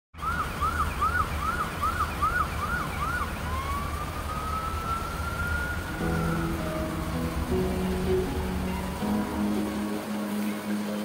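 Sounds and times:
siren yelping and wailing: 0.2s - 7.0s
steady low rumble: 5.7s - 10.3s.

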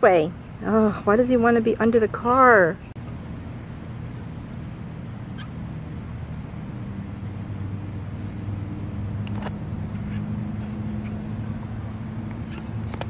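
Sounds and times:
thin high whine: 2.8s - 13.0s.

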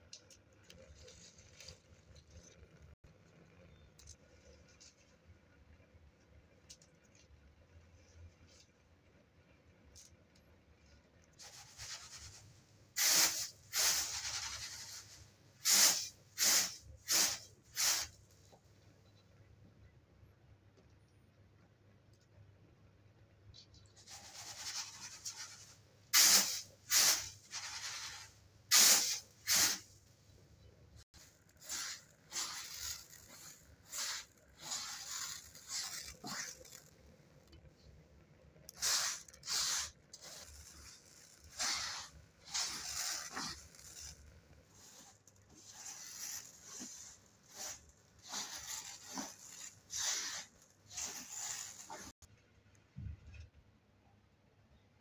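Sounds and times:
rice scraping on metal tray: 38.9s - 52.3s.

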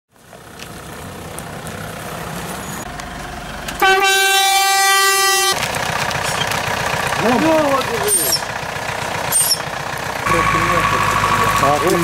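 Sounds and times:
off-road vehicle running: 0.1s - 12.0s
car horn steady note: 3.8s - 5.6s, 10.2s - 12.0s.

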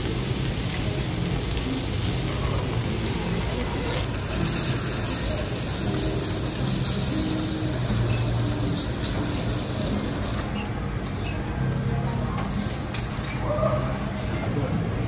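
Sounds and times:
meat sizzling on griddle: 0.0s - 10.7s, 12.4s - 13.6s.

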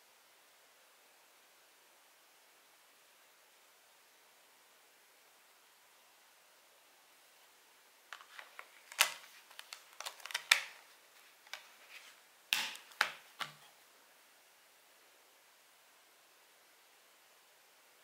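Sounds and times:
plastic case clicks and snaps: 8.2s - 10.8s, 12.6s - 13.6s.

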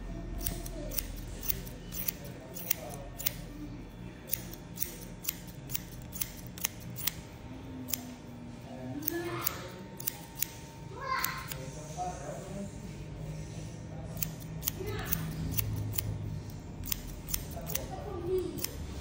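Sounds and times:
scissors snipping hair: 0.3s - 3.5s, 4.3s - 7.2s, 7.8s - 8.2s, 9.0s - 10.6s, 11.2s - 11.6s, 14.2s - 19.0s.

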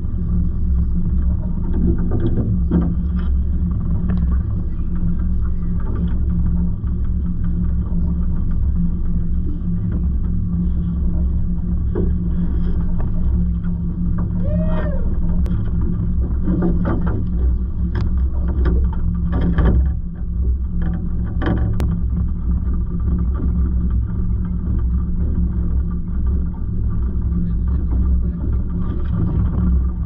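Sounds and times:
outboard motor running: 0.0s - 30.0s
knocks on boat: 16.3s - 20.0s.

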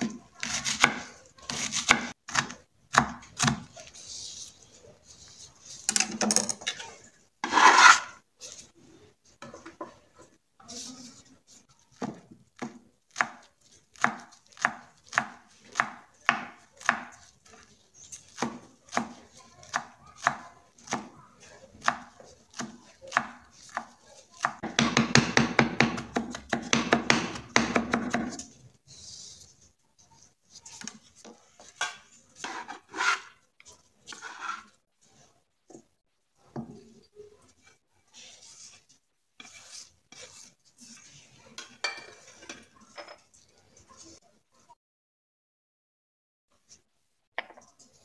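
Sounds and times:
knife chopping on wooden board: 0.4s - 3.7s, 14.0s - 17.1s, 21.8s - 28.4s
metal bench scraper scraping board: 7.4s - 8.2s, 32.4s - 33.4s, 34.1s - 34.8s.

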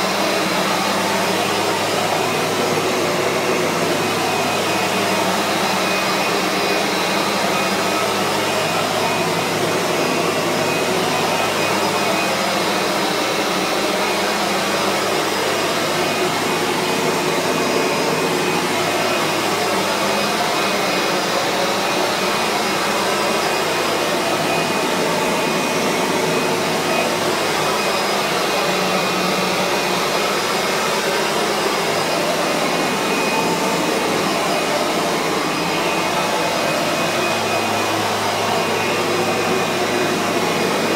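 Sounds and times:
upright vacuum buffing floor: 0.0s - 40.9s.

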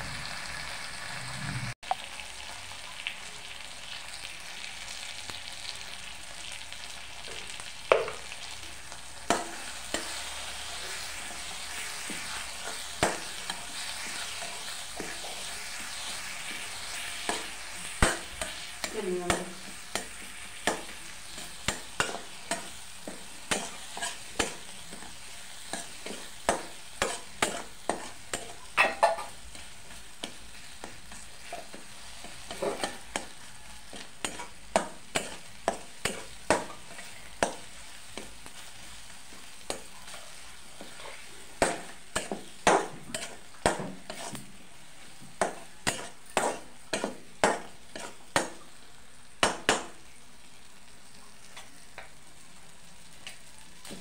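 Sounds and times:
paste sizzling: 0.0s - 54.0s
metal spatula scraping pan: 21.3s - 29.7s, 43.0s - 44.5s.

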